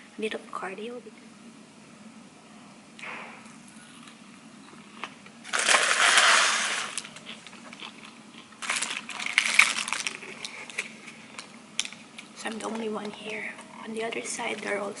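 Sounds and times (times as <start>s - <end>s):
food packaging crinkling: 5.0s - 13.7s.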